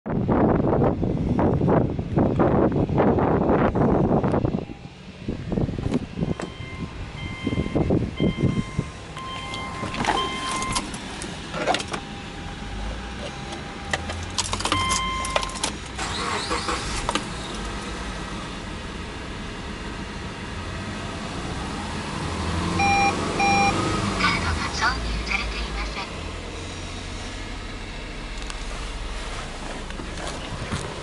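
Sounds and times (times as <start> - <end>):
car engine starting and running: 0.1 - 31.0
short beeps: 6.3 - 10.8, 14.7 - 15.6, 22.8 - 23.8
dashboard warning chime: 6.3 - 10.9, 12.5 - 15.7, 22.8 - 23.8.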